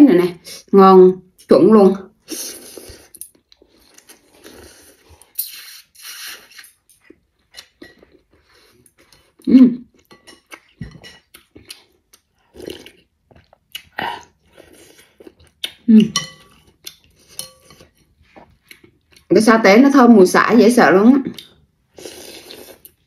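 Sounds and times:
chewing: 0:02.7 - 0:19.3
slurping noodles: 0:04.0 - 0:06.8, 0:22.0 - 0:23.0.

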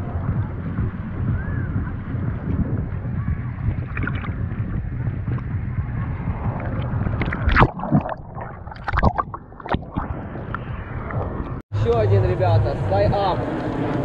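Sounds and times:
jet airliner rumbling overhead: 0:09.4 - 0:14.0.

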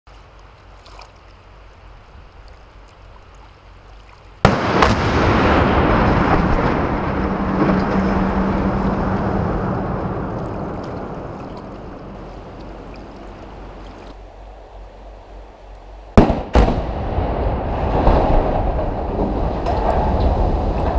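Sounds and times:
demolition charge blast: 0:04.4 - 0:11.3, 0:16.2 - 0:20.9
sharp crack: 0:04.4 - 0:12.8, 0:16.1 - 0:20.9
steel bridge collapsing rumble: 0:04.4 - 0:12.9, 0:16.2 - 0:20.9.

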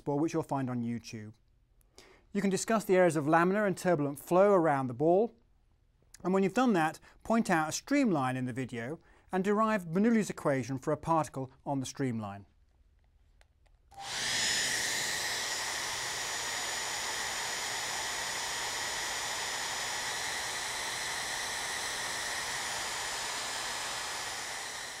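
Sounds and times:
hair dryer running: 0:13.9 - 0:25.0.

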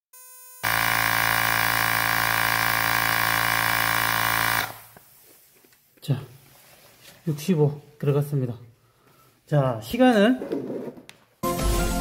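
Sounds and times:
electric air compressor running: 0:00.6 - 0:05.2.

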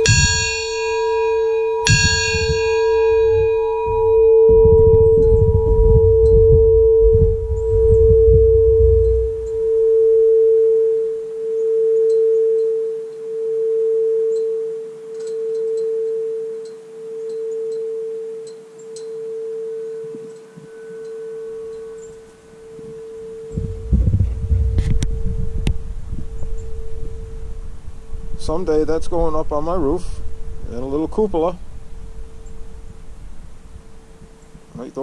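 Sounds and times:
low rumble: 0:00.0 - 0:10.1, 0:23.5 - 0:34.5
bell humming after being struck: 0:00.0 - 0:34.5.

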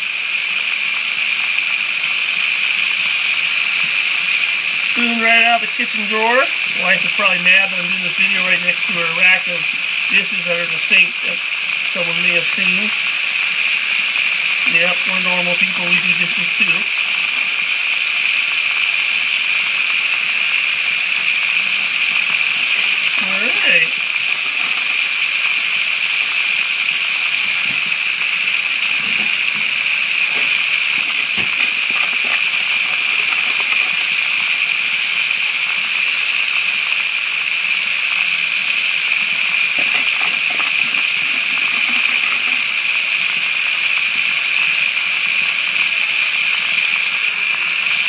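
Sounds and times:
water rushing down a sluice: 0:00.0 - 0:48.0.

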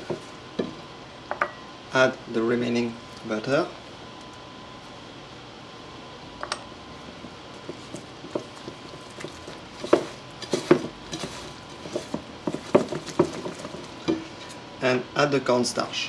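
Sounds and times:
spatula scraping glass bowl: 0:07.7 - 0:14.6.

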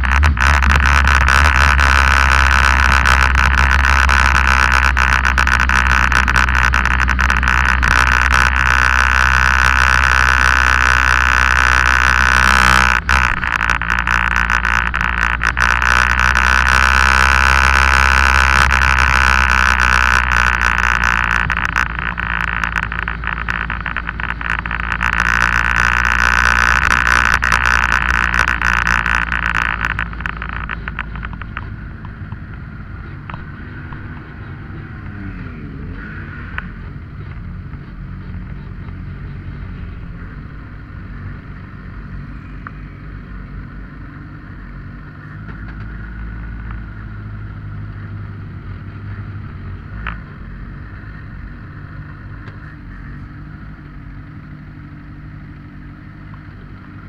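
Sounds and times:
race car engine: 0:00.0 - 0:57.0
faint clicks: 0:17.7 - 0:35.2.

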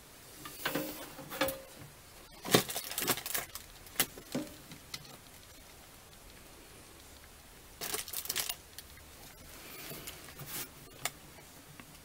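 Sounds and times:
packing material rustling: 0:02.3 - 0:05.5, 0:07.8 - 0:11.2.

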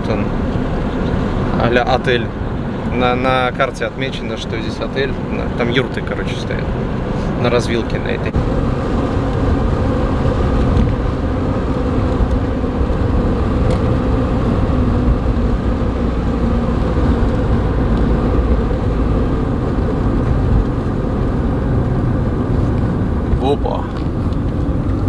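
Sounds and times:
car interior road rumble: 0:00.0 - 0:25.0.

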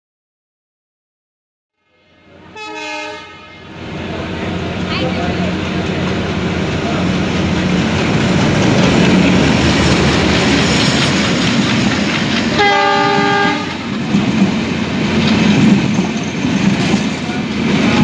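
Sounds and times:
train horn: 0:01.8 - 0:03.8, 0:12.5 - 0:13.9
train passing at speed: 0:01.8 - 0:18.0
wheels clattering over rails: 0:04.8 - 0:18.0.

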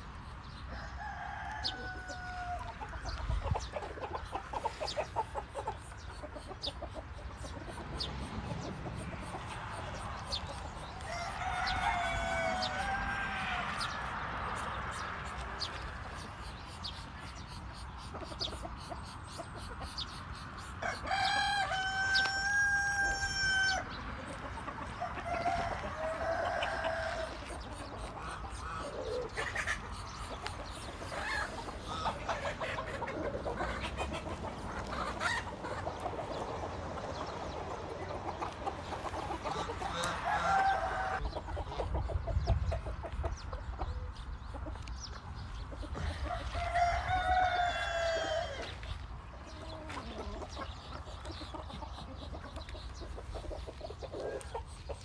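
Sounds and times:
chicken calls: 0:00.0 - 0:55.0
rooster crowing: 0:00.8 - 0:02.8, 0:11.1 - 0:14.2, 0:20.8 - 0:23.9, 0:25.0 - 0:27.5, 0:39.8 - 0:41.2, 0:46.0 - 0:48.8.

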